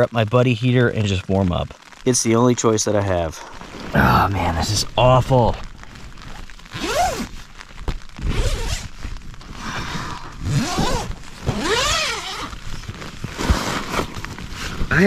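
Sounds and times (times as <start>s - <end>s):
tent zipper rasping: 5.8s - 15.0s.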